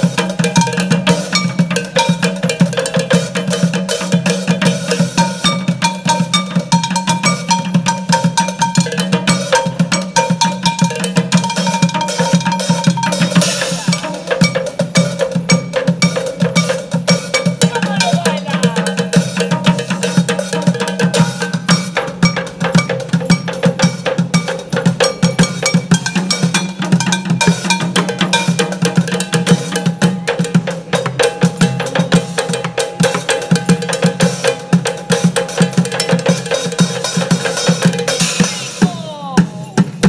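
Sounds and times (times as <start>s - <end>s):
drumsticks beating buckets and pots: 0.0s - 31.6s.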